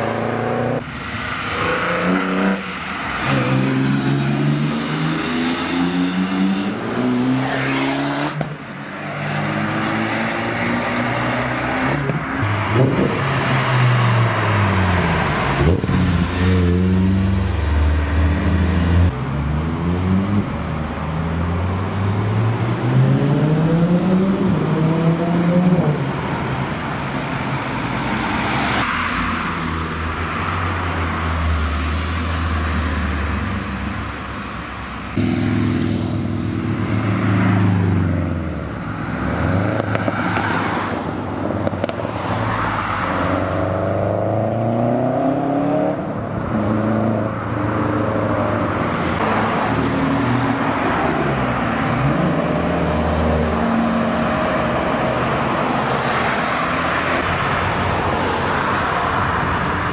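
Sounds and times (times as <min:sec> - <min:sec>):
car revving and pulling away: 0:00.0 - 0:34.2, 0:35.1 - 0:59.9
sports car engines accelerating: 0:01.4 - 0:26.3, 0:35.1 - 0:57.4.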